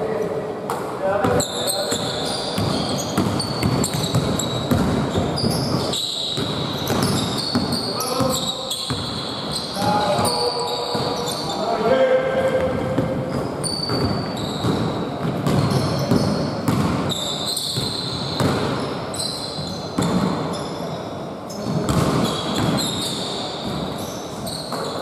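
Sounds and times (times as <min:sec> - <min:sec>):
basketball bouncing: 0:01.2 - 0:11.3, 0:12.3 - 0:18.9, 0:21.7 - 0:22.9
sneaker squeaks: 0:01.2 - 0:25.0.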